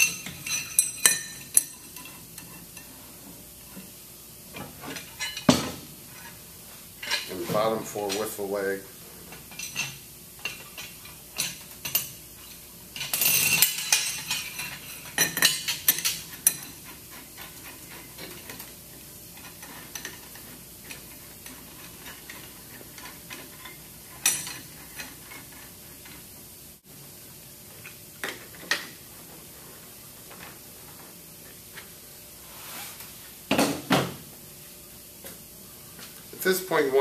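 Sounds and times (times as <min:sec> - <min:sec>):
metal bolts clinking on metal: 0:00.0 - 0:02.6, 0:13.0 - 0:16.8.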